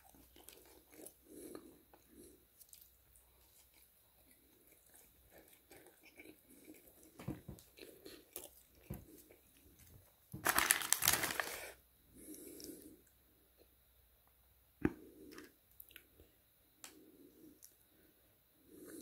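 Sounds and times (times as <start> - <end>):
chewing and crunching: 0.0 - 12.9
paper wrapper rustling: 10.4 - 11.6.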